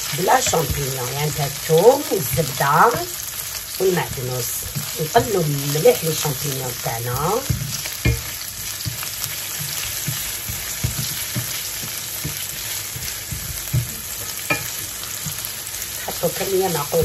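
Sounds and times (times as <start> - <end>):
mushrooms sizzling in a pan: 0.0 - 17.0
wooden spatula scraping a pan: 0.0 - 17.0.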